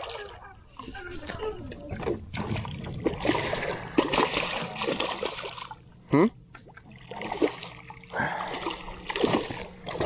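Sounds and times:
fish thrashing and splashing: 1.4s - 5.8s, 6.6s - 10.0s.

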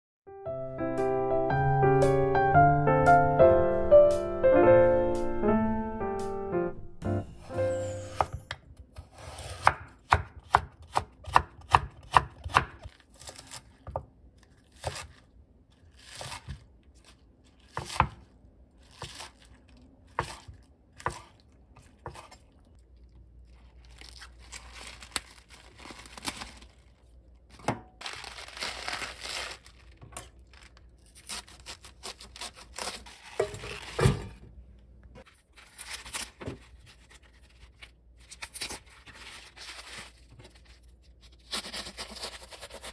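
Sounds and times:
wet leaves rustling in sink: 14.4s - 34.0s.

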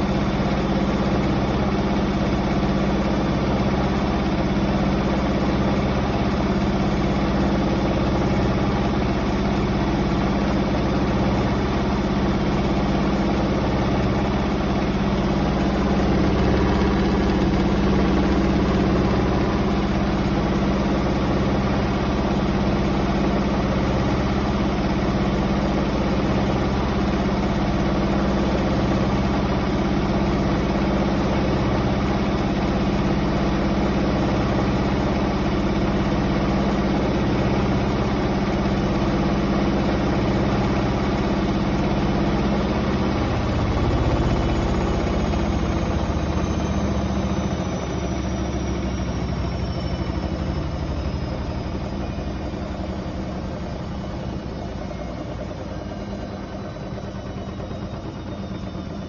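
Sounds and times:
washing machine motor hum: 0.0s - 59.0s.

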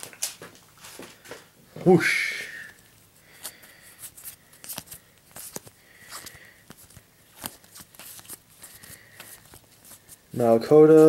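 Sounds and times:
cards clicking and rustling: 2.8s - 11.0s.

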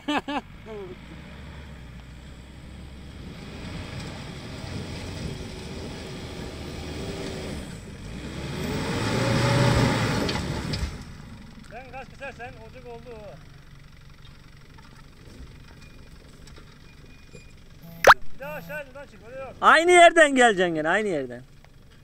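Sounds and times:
truck engine revving under load: 1.0s - 11.0s.

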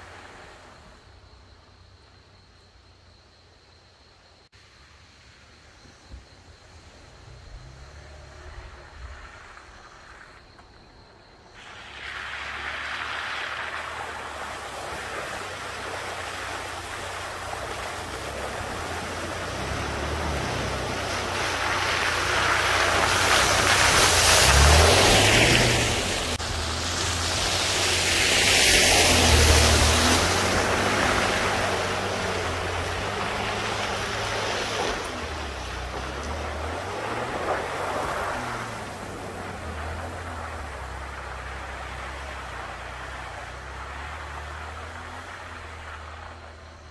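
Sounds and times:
water and mud splashing: 11.6s - 46.9s
truck engine revving: 11.8s - 46.9s.

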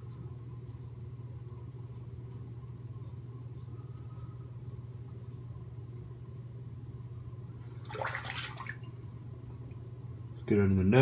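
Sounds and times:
razor rasping on stubble: 0.0s - 7.1s
steady low hum: 0.0s - 11.0s.

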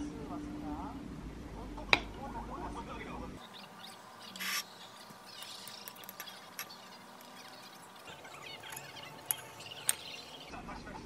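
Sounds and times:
cutlery scraping: 8.0s - 10.2s
metal clinking on a plate: 8.2s - 10.2s.

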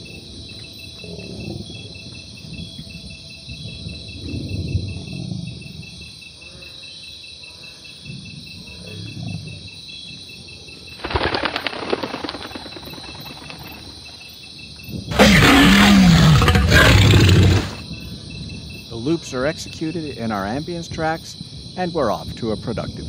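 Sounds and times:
insects chirping: 0.0s - 23.0s
wings flapping: 11.0s - 14.2s
heavy creature breathing: 15.1s - 17.8s.

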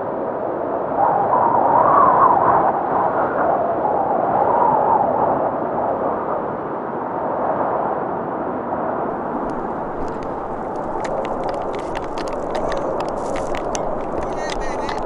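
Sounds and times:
wind blowing across microphone: 8.9s - 15.0s
footsteps on packed snow: 9.1s - 15.0s.

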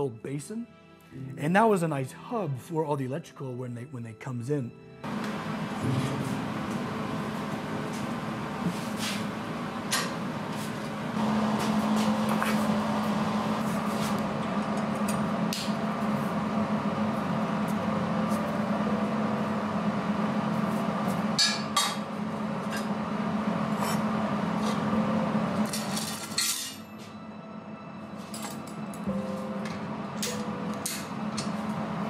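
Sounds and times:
steady hum: 5.0s - 25.8s.

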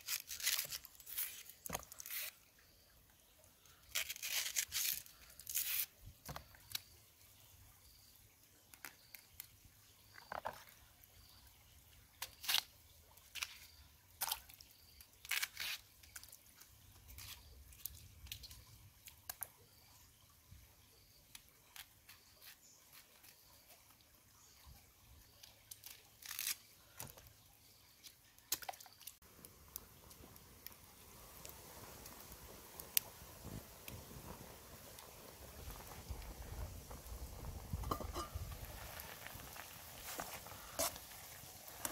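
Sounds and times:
banana flower bracts snapping: 0.0s - 2.4s, 3.8s - 5.9s, 15.2s - 16.3s, 25.7s - 26.7s.

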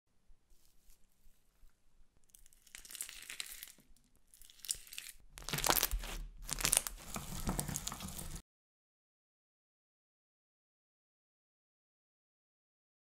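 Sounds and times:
slime crackling and popping: 2.3s - 8.4s.

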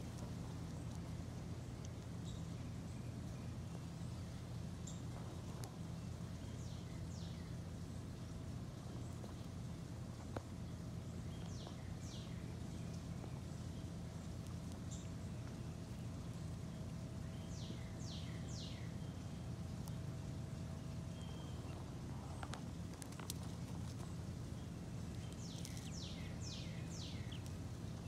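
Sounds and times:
steady low hum: 0.0s - 28.0s
bird chirps: 17.2s - 19.5s, 20.9s - 21.8s, 24.0s - 27.5s.

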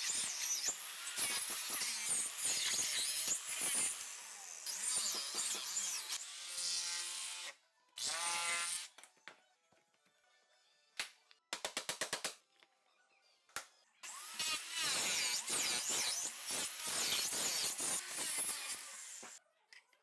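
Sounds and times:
handheld power tool buzzing: 0.0s - 8.9s, 14.0s - 19.4s.

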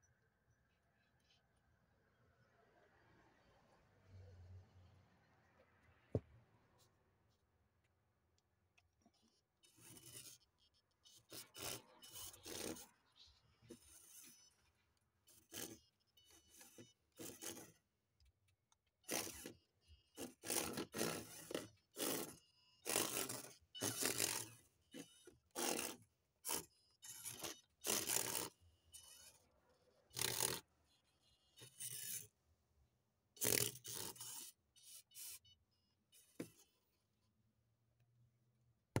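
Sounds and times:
toy car tyres scraping wood: 9.6s - 10.5s, 11.1s - 17.9s, 19.0s - 32.4s, 33.3s - 35.5s
small electric motor whine: 9.6s - 14.7s, 19.1s - 32.4s, 33.4s - 36.8s.

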